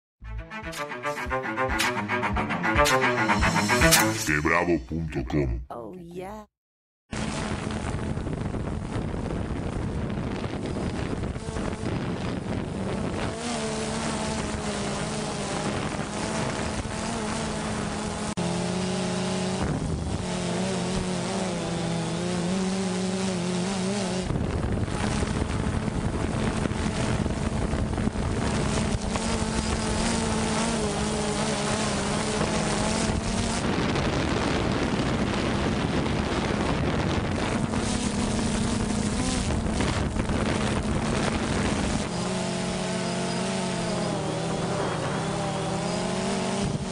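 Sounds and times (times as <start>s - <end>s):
wind noise on microphone: 7.2s - 18.3s, 19.5s - 21.3s, 23.8s - 46.9s
motor hum: 7.2s - 46.9s.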